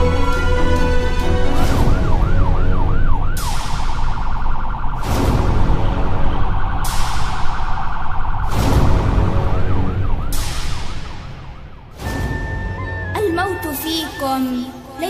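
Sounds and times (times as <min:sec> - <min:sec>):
siren wailing: 0:00.0 - 0:15.0
loud blasts: 0:04.9 - 0:13.0.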